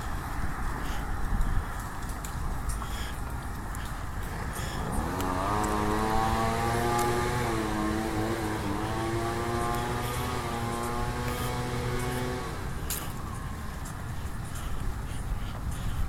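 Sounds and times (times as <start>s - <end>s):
engine revving: 4.2s - 13.1s.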